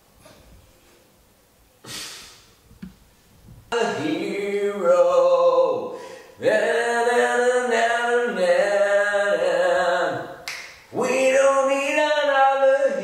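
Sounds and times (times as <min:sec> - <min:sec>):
singer breathing: 0:01.8 - 0:02.6, 0:05.9 - 0:06.4
man singing unaccompanied: 0:03.7 - 0:13.0.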